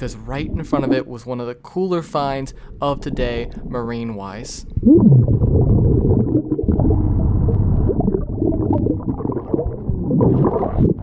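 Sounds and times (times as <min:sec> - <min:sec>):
underwater rumbling and gurgling: 0:00.0 - 0:01.2, 0:02.2 - 0:11.0
bubbles underwater: 0:00.2 - 0:01.2, 0:04.6 - 0:11.0.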